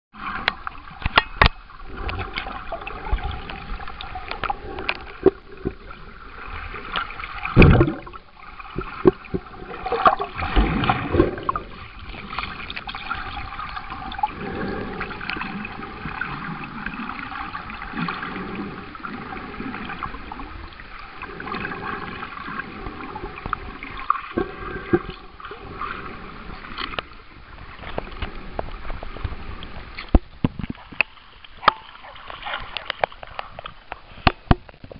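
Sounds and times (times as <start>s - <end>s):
muffled underwater water wash: 0.2s - 34.9s
underwater clicks and knocks: 0.4s - 5.9s, 6.9s - 14.0s, 27.8s - 34.9s.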